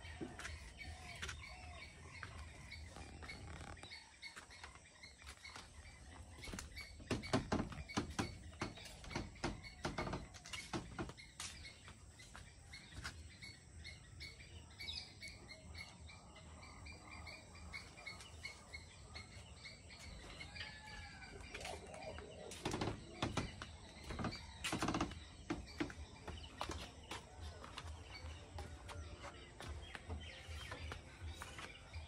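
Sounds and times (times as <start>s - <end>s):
small birds chirping: 0.0s - 32.0s
sharp knocks and clicks: 6.7s - 11.2s.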